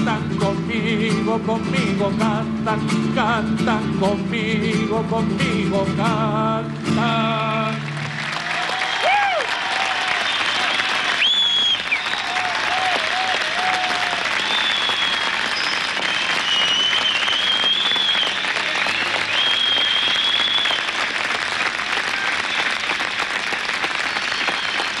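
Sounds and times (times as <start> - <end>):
large audience applauding: 7.0 - 25.0
high drawn-out whistles: 10.2 - 12.3, 14.3 - 21.0, 24.0 - 25.0.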